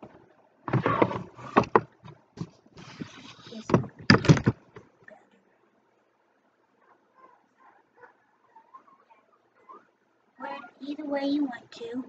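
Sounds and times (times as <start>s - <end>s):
knocks and thuds: 0.0s - 2.6s, 3.6s - 4.9s
clothing rustling: 2.4s - 4.4s.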